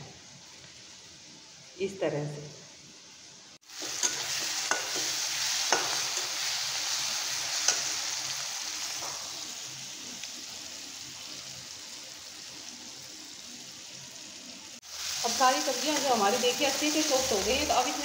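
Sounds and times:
vegetables sizzling in oil: 0.1s - 1.9s, 2.8s - 18.0s
metal spatula knocking pan: 3.8s - 6.3s.

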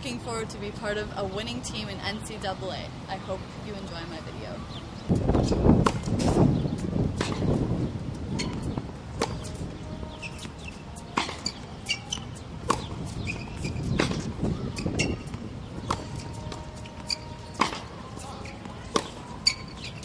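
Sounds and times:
tennis ball struck by racket: 5.4s - 7.7s, 8.4s - 20.0s
short high squeaks: 10.2s - 12.4s, 13.2s - 14.2s, 19.4s - 20.0s.

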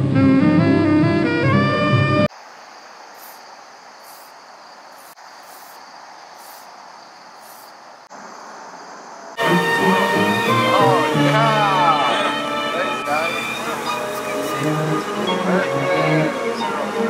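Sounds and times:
high insect chirp: 2.3s - 11.8s
steady background hiss: 2.3s - 17.0s.

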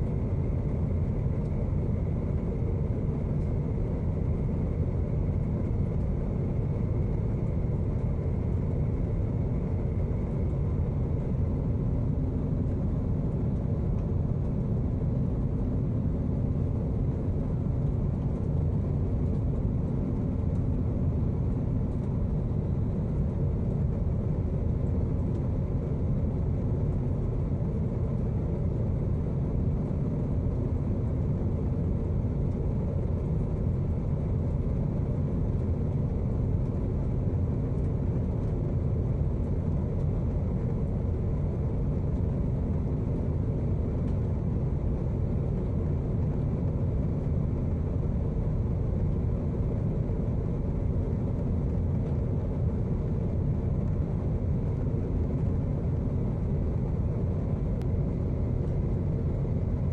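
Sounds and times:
airliner cabin rumble: 0.0s - 59.9s.

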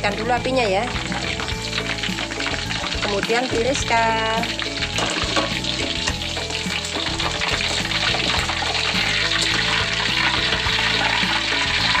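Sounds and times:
background music: 0.0s - 12.0s
oil sizzling in a wok: 0.0s - 12.0s.

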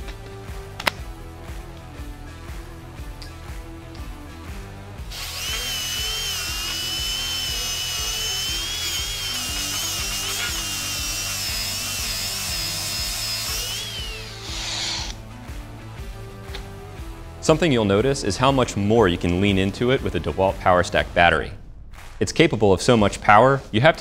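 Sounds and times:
background music: 0.0s - 24.0s
angle grinder grinding steel: 5.1s - 15.2s.

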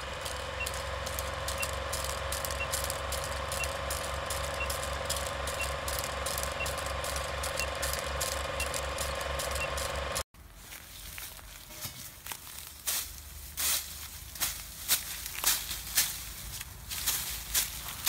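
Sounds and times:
film projector whirring and clattering: 0.0s - 10.3s.

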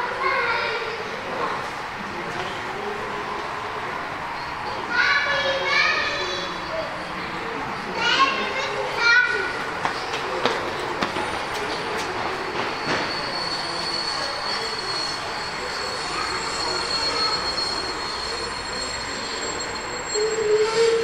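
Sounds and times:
model train rolling: 12.5s - 21.0s.

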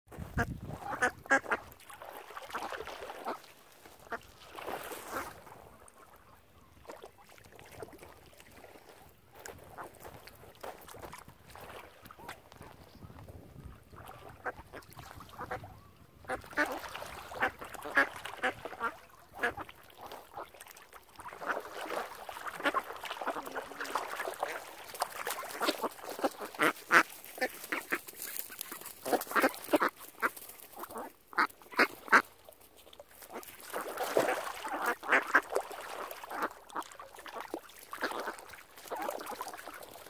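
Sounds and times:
ducks quacking: 0.2s - 1.8s, 14.0s - 20.5s, 21.2s - 32.3s, 33.3s - 37.0s, 37.9s - 39.8s.

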